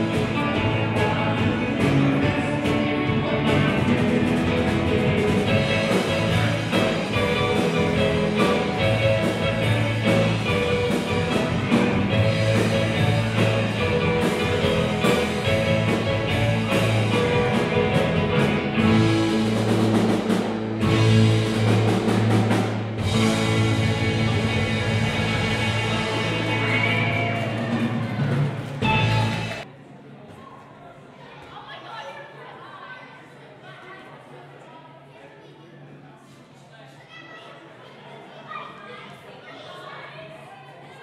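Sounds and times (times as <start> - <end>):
bass guitar: 0.0 - 29.6
drum beat: 0.0 - 29.6
electric guitars: 0.0 - 29.6
keyboard: 0.0 - 29.6.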